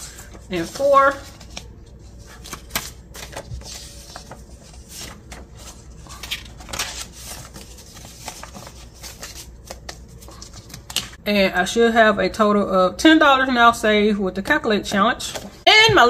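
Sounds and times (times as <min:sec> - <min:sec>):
paper bills rustling and crinkling: 0:00.0 - 0:11.2.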